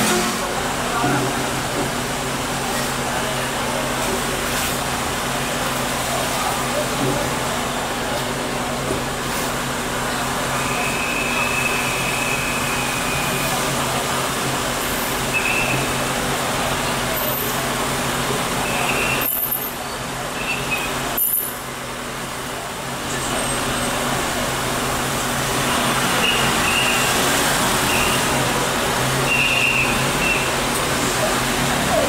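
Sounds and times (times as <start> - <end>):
traffic on wet road: 0.0 - 32.0
rain hiss: 1.4 - 32.0.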